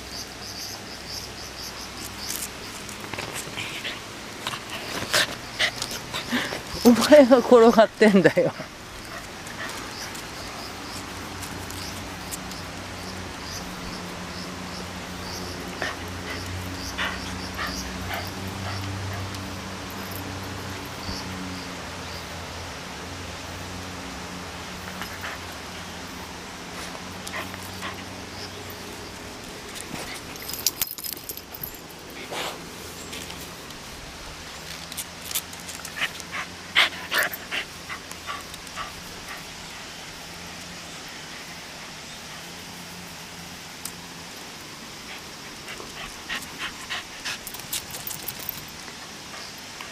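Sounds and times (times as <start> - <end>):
dog panting: 3.4 - 7.1, 8.5 - 10.6, 15.5 - 20.2, 26.8 - 29.0, 35.8 - 39.9, 45.0 - 49.9.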